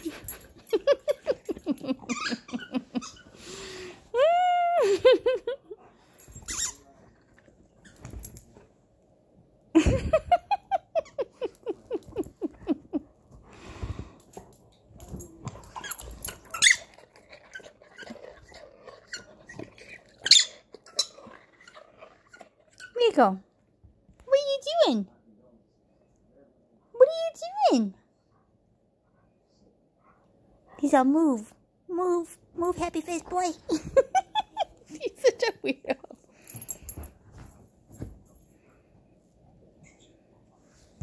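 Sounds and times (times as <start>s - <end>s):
dog whining: 1.8s - 3.5s.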